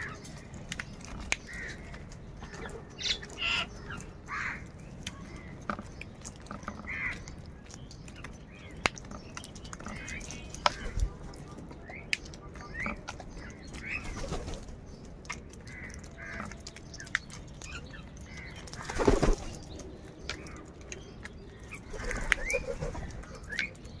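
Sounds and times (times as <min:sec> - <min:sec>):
crows cawing: 0:01.5 - 0:01.9, 0:04.3 - 0:04.7.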